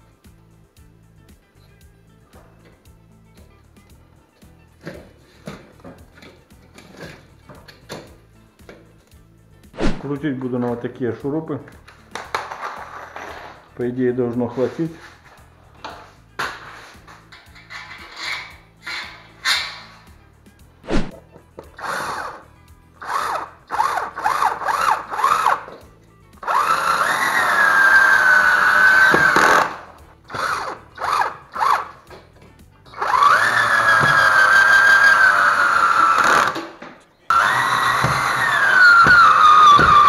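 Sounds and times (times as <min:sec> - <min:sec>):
cordless drill driving screws: 0:21.7 - 0:22.4, 0:23.0 - 0:25.8, 0:26.4 - 0:32.0, 0:32.9 - 0:36.7, 0:37.3 - 0:40.0.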